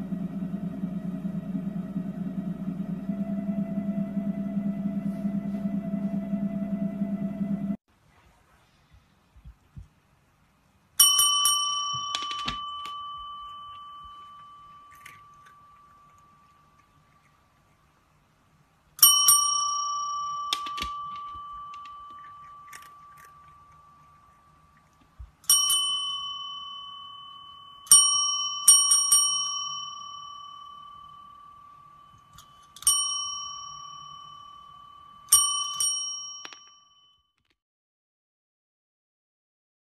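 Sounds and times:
desk call bell ringing: 11.0 - 16.8, 19.0 - 24.8, 25.5 - 37.3.

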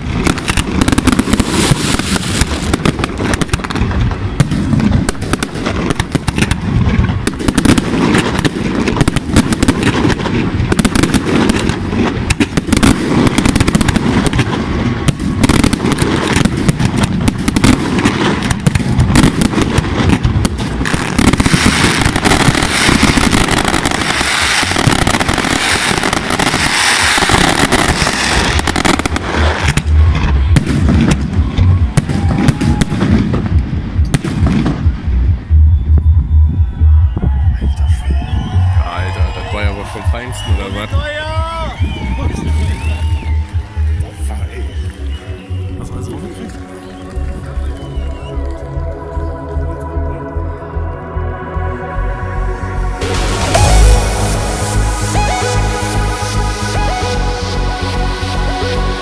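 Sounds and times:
fireworks bangs: 0.0 - 35.2, 53.0 - 57.1.

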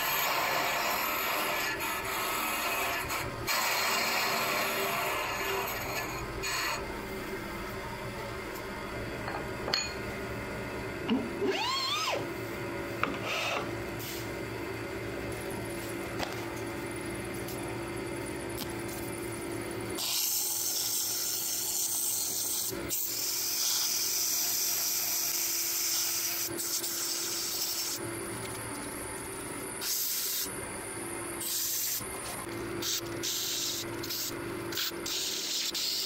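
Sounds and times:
sandpaper hissing on spinning wood: 32.8 - 36.0.

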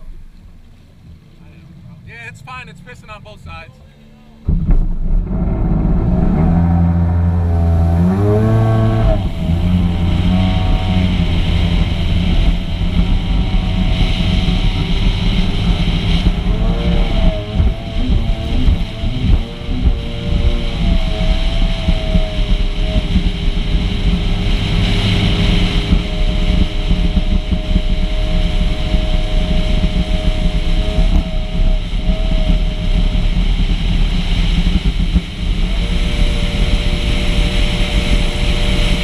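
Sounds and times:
watercraft engine whine: 0.0 - 39.0
wind rushing across microphone: 4.4 - 39.0.

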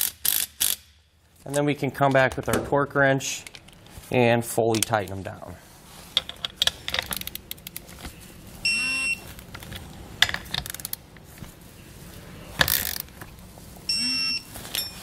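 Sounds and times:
ratchet clicks: 0.0 - 0.9
electronic beep: 8.6 - 9.2, 13.9 - 15.0.

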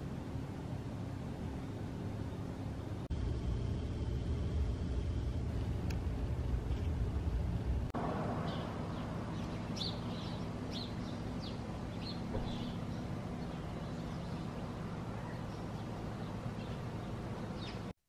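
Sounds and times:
low background hum: 0.0 - 18.0
small birds chirping: 8.4 - 18.0.

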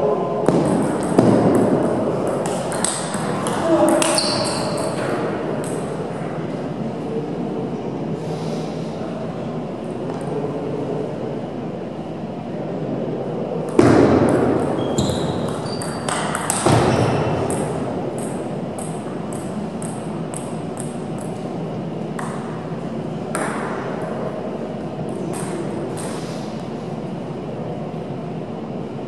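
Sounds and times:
table tennis ball bouncing: 0.4 - 6.0, 13.6 - 21.5, 22.1 - 22.6, 23.2 - 24.2, 25.1 - 26.2.

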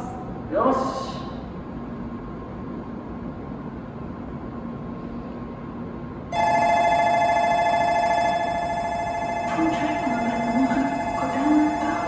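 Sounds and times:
train humming: 6.2 - 12.0
electronic departure bell ringing: 6.3 - 12.0.

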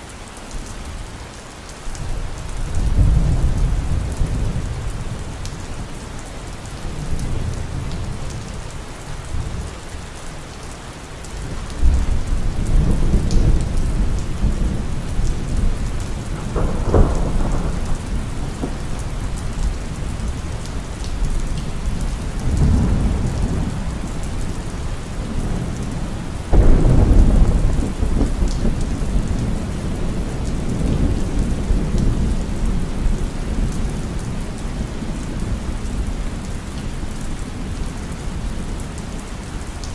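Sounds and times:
steady rain: 0.0 - 39.9
rolling thunder: 11.8 - 20.7, 22.0 - 33.6
sharp thunder crack: 16.2 - 18.9, 26.5 - 28.8.

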